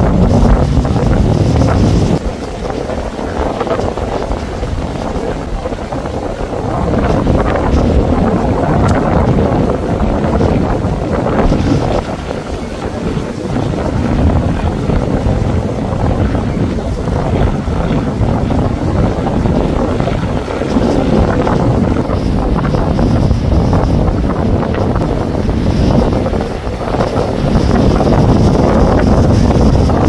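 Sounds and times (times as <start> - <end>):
wind buffeting microphone: 0.0 - 30.0.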